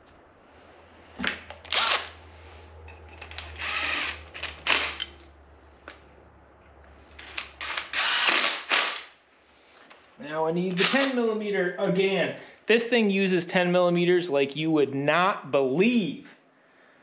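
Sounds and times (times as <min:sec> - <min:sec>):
low steady hum: 0:00.0 - 0:13.6
impact wrench bursts: 0:01.3 - 0:02.2, 0:03.2 - 0:05.3, 0:07.2 - 0:09.2.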